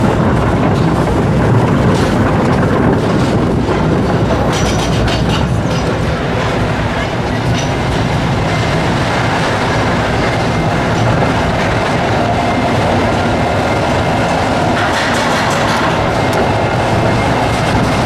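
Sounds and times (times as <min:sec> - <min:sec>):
roller coaster lift chain clatter: 0:00.0 - 0:18.0.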